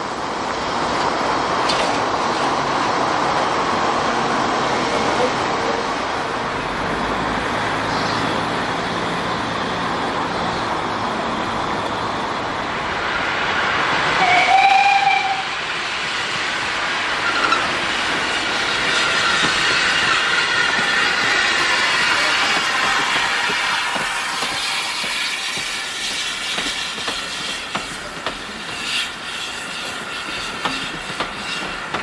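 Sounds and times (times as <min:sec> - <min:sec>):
steam locomotive whistle: 0:14.2 - 0:15.6
steam engine running: 0:18.2 - 0:32.0.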